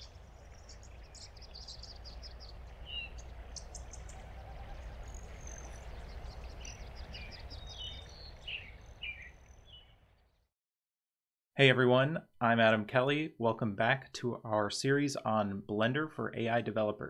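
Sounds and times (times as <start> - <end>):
steady low rumble: 0.0 - 9.0
songbirds chirping and trilling: 0.0 - 10.5.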